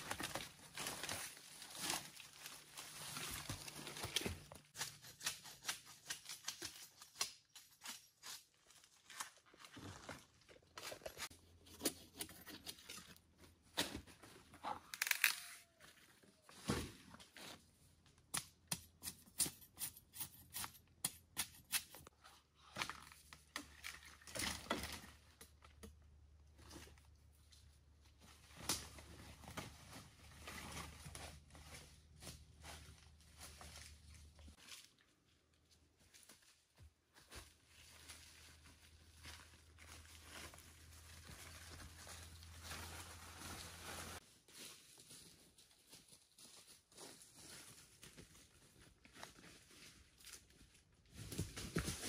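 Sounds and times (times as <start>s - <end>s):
dry leaves rustling and crackling: 0.0s - 4.4s, 37.3s - 47.8s.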